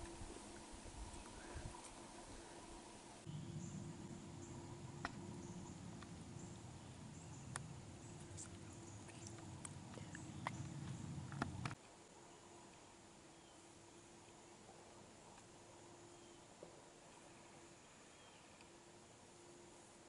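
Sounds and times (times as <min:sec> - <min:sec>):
low rumble: 0:03.2 - 0:11.8.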